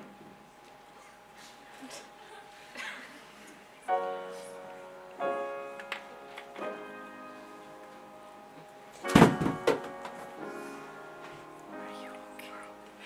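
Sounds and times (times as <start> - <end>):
piano playing slow chords: 3.8 - 13.0
loud cluster of thumps: 9.0 - 10.2.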